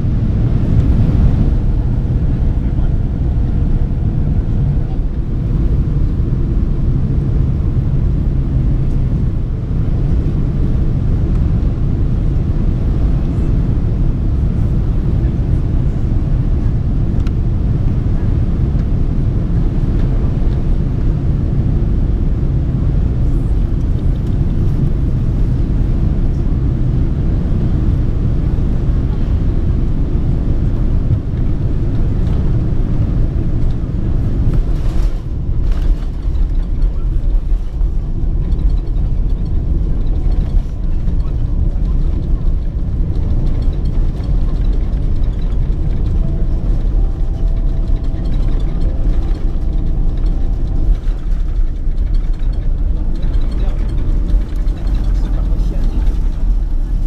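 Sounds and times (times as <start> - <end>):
low rumble of airflow and engines: 0.0 - 57.0.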